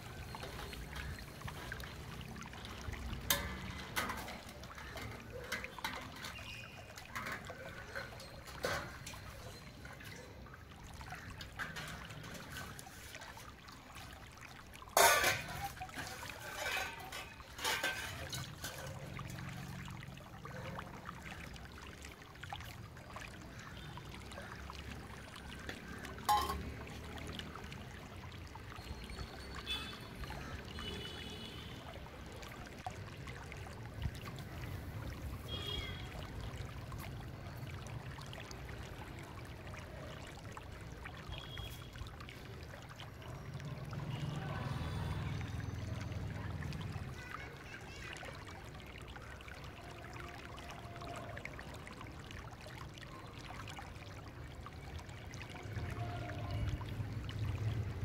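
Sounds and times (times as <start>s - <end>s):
water splashing in basin: 0.0s - 58.0s
steel dishes clinking: 15.0s - 18.9s, 26.3s - 26.6s
metal knock with ring: 26.3s - 26.6s.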